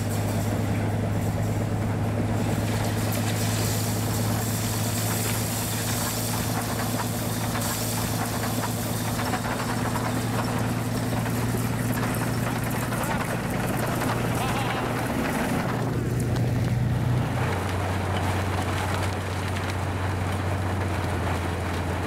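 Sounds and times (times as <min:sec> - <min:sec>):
low mechanical drone of locomotives: 0:00.0 - 0:22.0
rushing hiss of thrown snow: 0:02.4 - 0:11.4.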